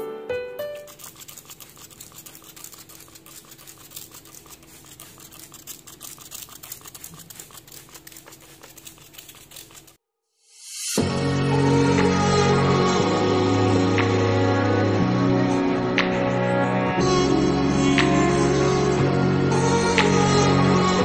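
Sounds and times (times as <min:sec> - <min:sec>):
piano music: 0:00.0 - 0:01.3
cloth rubbing on surfaces: 0:00.8 - 0:10.0.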